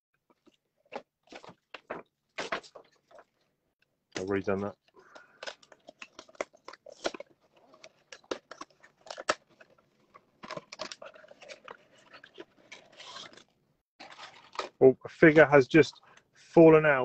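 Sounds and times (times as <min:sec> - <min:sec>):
cardboard and plastic tearing: 0:00.9 - 0:03.2, 0:05.3 - 0:14.8.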